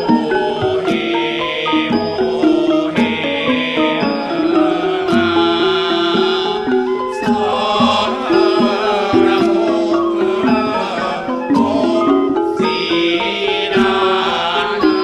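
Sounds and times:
drum strokes: 0.0 - 15.0
long held melodic tones: 0.0 - 15.0.

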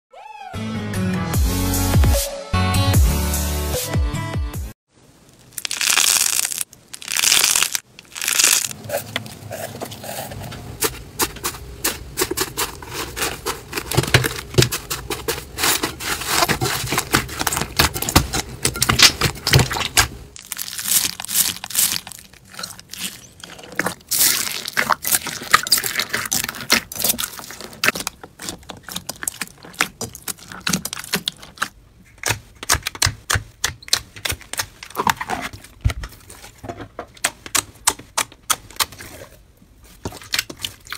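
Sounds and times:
slime crackling when squeezed: 5.4 - 8.8, 20.4 - 23.2.

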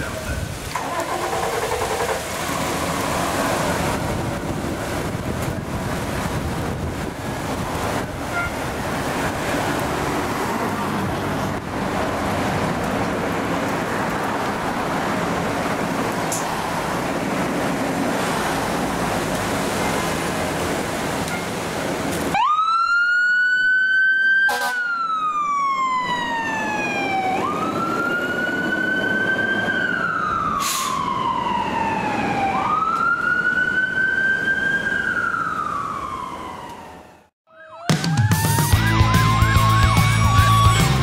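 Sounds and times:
fire engine engine running: 0.0 - 23.9
siren wailing: 0.8 - 4.7, 22.3 - 41.0.

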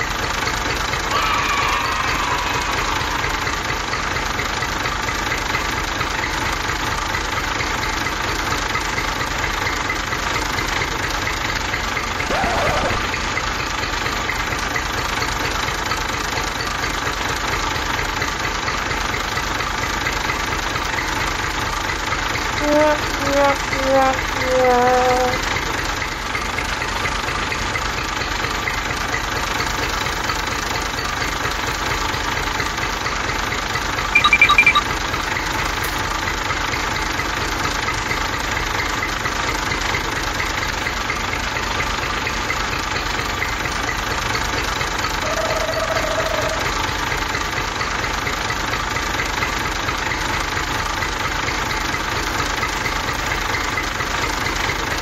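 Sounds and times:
high tone: 22.6 - 25.4, 34.2 - 35.0
toy tractor motor buzzing: 22.6 - 25.4.

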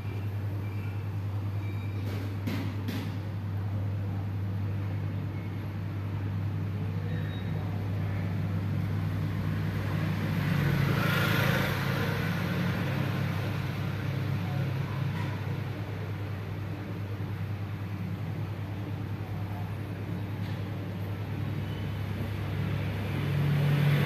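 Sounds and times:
traffic hum: 7.6 - 24.0
vehicle passing by: 9.1 - 14.2, 22.3 - 24.0.

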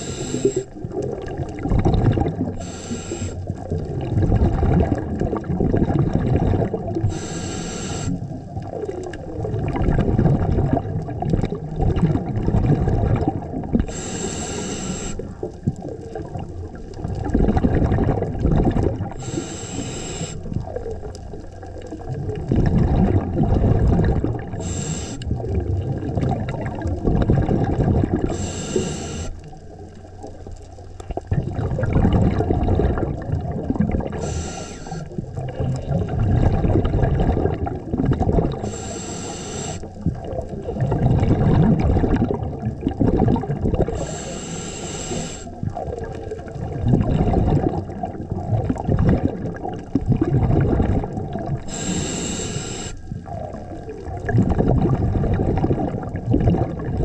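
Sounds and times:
regulator hissing inhale: 0.0 - 0.8, 2.6 - 3.6, 7.0 - 8.3, 13.8 - 15.4, 19.2 - 20.6, 24.5 - 25.3, 28.3 - 29.5, 34.1 - 35.2, 38.6 - 40.0, 43.9 - 45.6, 51.7 - 53.1
bubbling exhaled air: 0.0 - 57.0.

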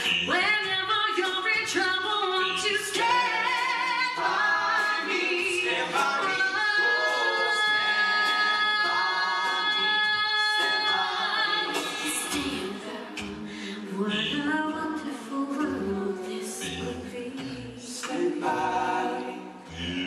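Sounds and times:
a cappella group singing: 0.0 - 20.0
low bass voice: 16.6 - 17.1, 19.6 - 20.0.

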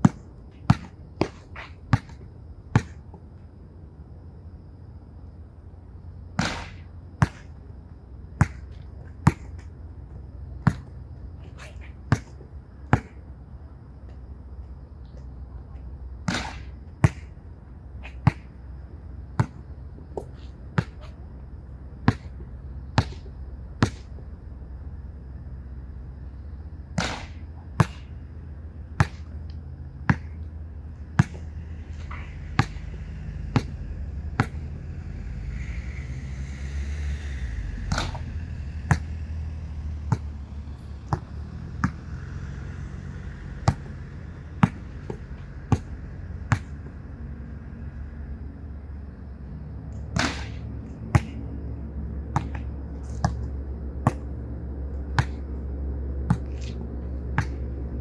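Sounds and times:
basketball bouncing on hard court: 0.0 - 3.0, 8.4 - 9.6, 11.5 - 13.2, 19.4 - 19.6, 22.0 - 22.4, 23.0 - 24.2, 29.0 - 29.4, 30.0 - 30.6, 31.2 - 31.5, 33.5 - 33.8, 34.4 - 34.6, 37.9 - 39.2, 40.0 - 40.3, 41.1 - 42.0, 43.6 - 46.9, 52.2 - 54.4, 55.1 - 55.6, 56.2 - 57.8
ball banging off backboard and rim: 6.4 - 7.5, 16.2 - 17.3, 27.0 - 28.2, 29.0 - 29.3, 37.9 - 39.1, 50.1 - 51.4, 52.3 - 54.3
low hum: 12.4 - 58.0.

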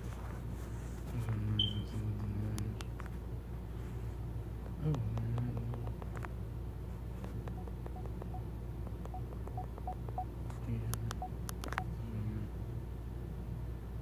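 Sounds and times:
low steady hum: 0.0 - 14.0
smartphone volume beeps: 1.6 - 1.9, 7.6 - 8.4.

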